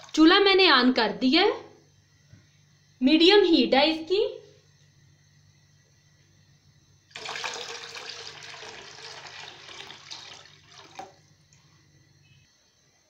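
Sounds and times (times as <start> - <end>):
milk pouring into wok: 7.1 - 11.7.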